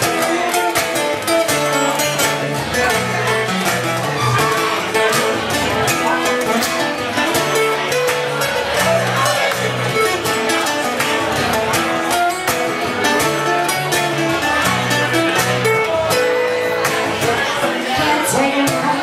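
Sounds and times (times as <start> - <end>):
acoustic guitar strumming: 0.0 - 19.0.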